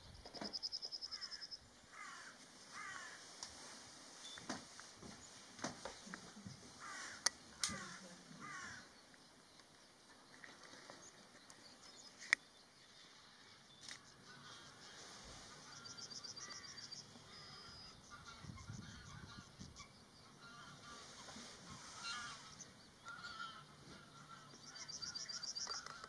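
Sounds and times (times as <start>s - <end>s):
wetland birds harsh calls: 6.6s - 8.9s, 14.1s - 26.0s.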